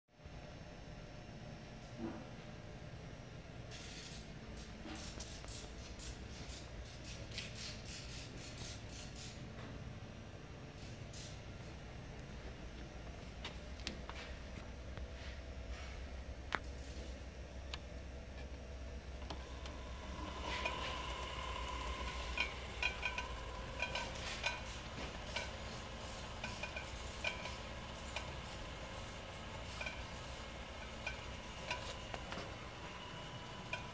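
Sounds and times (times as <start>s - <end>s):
conveyor motor humming: 0.2s - 33.9s.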